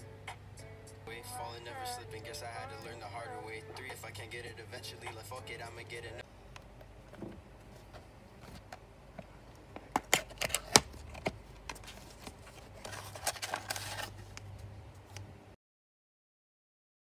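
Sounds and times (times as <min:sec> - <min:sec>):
packets rustling and crinkling: 0:10.2 - 0:14.6.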